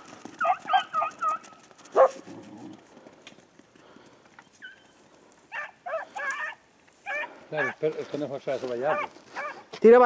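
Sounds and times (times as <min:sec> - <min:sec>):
dog barking: 0:01.9 - 0:02.2, 0:05.5 - 0:07.8, 0:08.9 - 0:09.6.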